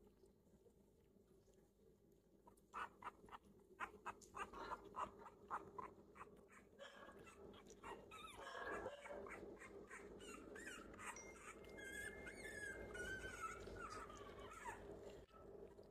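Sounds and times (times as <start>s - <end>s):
puppies whimpering and squeaking: 3.8s - 15.3s.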